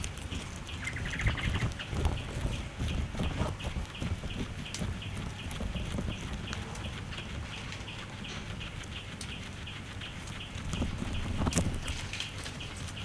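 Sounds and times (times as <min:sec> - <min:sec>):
guinea pig chewing grass: 0:00.0 - 0:13.0
rapid even chirping: 0:00.0 - 0:13.0.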